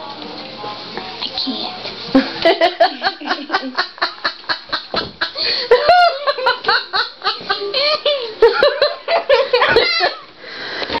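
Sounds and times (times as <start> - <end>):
girl laughing in giggles: 2.2 - 10.3.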